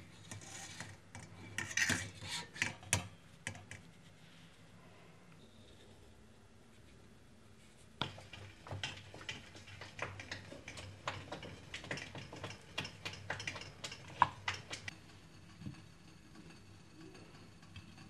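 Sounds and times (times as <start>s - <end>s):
cookies tapping on plates: 8.0s - 15.0s.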